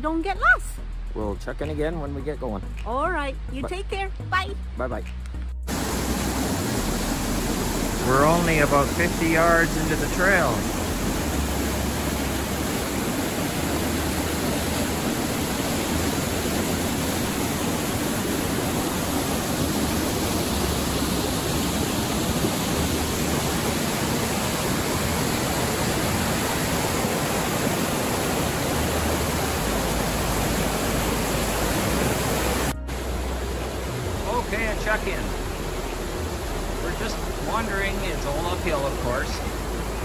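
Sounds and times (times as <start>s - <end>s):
creek rushing over boulders: 5.7s - 40.0s.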